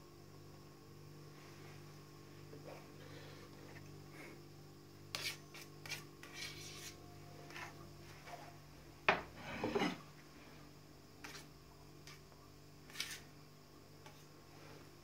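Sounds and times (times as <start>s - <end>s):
knife scraping cream: 5.1s - 7.8s, 11.2s - 11.5s, 12.8s - 13.3s.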